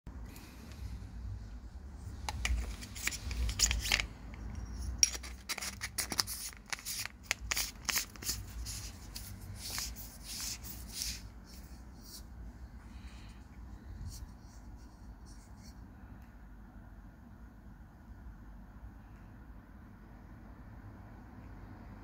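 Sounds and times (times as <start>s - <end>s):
flashlight parts clicking and rubbing: 2.0s - 12.3s.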